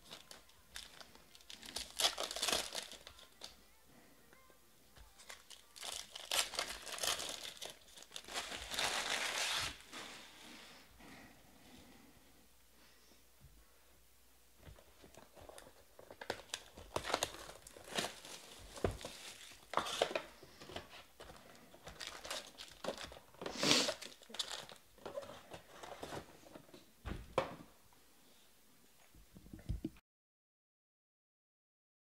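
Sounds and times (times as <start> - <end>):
foil card packs crinkling: 0.0 - 3.6, 5.0 - 9.9, 15.1 - 26.2.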